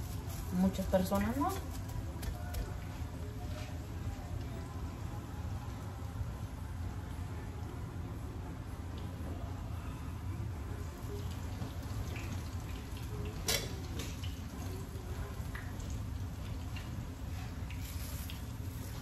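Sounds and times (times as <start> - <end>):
low steady hum: 0.0 - 19.0
food sizzling in a frying pan: 11.3 - 19.0.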